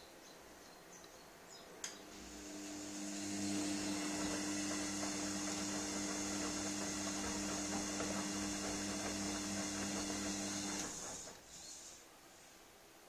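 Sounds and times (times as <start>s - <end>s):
washing machine motor hum: 2.0s - 11.6s
water and laundry rushing in drum: 2.2s - 11.5s.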